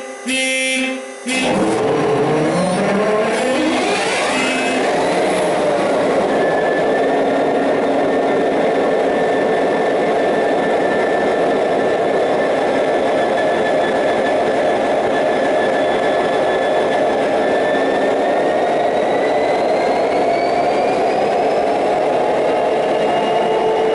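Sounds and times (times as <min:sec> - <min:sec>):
high whine: 0:00.0 - 0:21.6.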